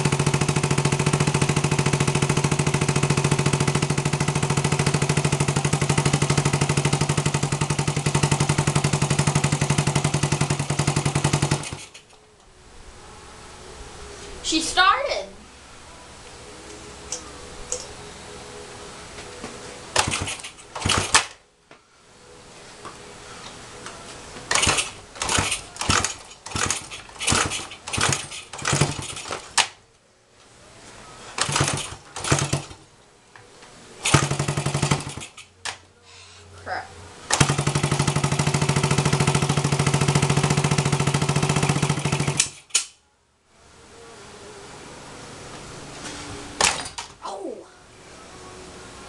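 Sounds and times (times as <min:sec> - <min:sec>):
motorcycle engine sputtering: 0:00.0 - 0:12.1, 0:19.9 - 0:21.4, 0:24.5 - 0:29.7, 0:31.4 - 0:32.8, 0:34.0 - 0:35.8, 0:37.3 - 0:42.7.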